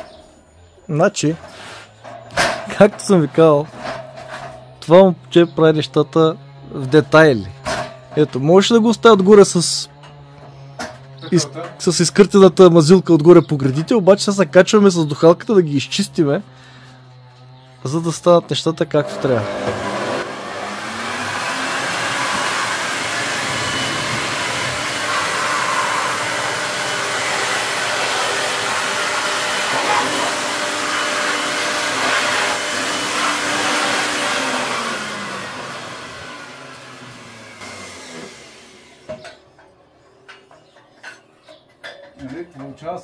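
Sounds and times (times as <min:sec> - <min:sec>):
electric blower whining: 0:01.4 - 0:39.7.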